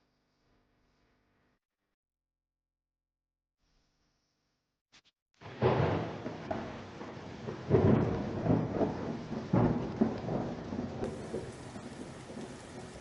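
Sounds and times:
rain hissing: 5.4s - 13.0s
thunder rumbling: 5.4s - 13.0s.

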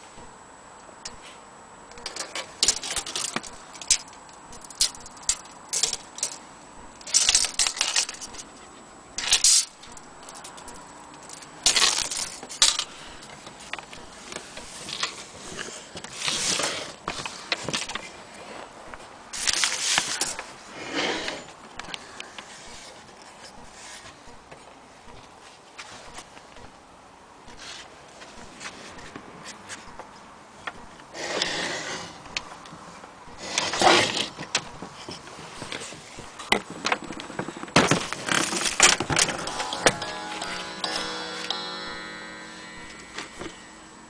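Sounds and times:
handling clicks rattles and scrapes: 1.9s - 6.4s, 7.0s - 24.7s, 33.4s - 41.9s.

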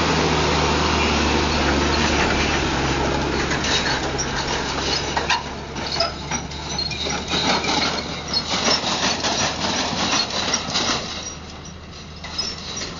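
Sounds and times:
tractor engine running: 0.0s - 12.9s
wagon knocking and rattling: 1.4s - 12.9s.

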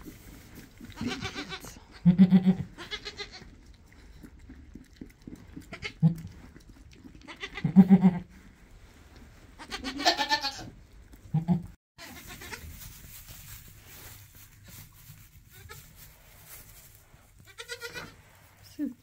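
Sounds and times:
goat bleating: 0.9s - 3.5s, 7.3s - 8.2s, 9.6s - 10.7s, 11.3s - 12.7s, 17.5s - 18.2s
rustling in straw: 12.0s - 19.0s.

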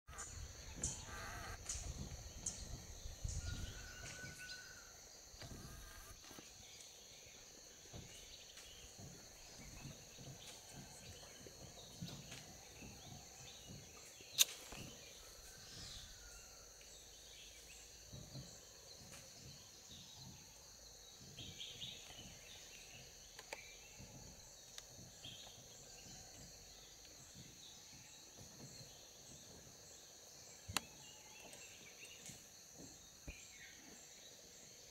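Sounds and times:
high-pitched insect drone: 0.1s - 6.4s.

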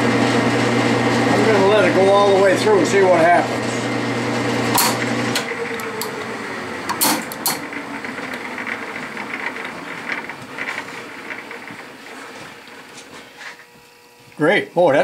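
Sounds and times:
metal lathe turning: 1.2s - 13.4s
sharp clicks and knocks: 4.7s - 6.2s, 6.9s - 11.8s.

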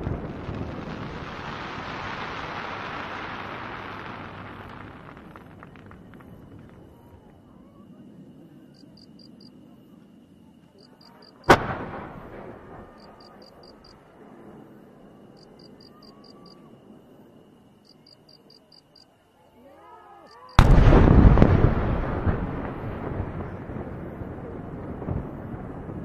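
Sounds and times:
fireworks exploding: 0.0s - 8.0s, 11.0s - 16.6s, 20.4s - 26.0s.

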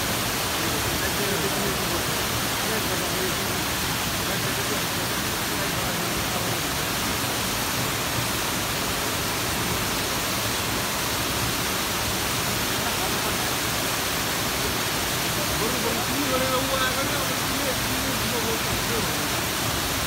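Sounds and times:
waterfall rushing: 0.0s - 20.0s.

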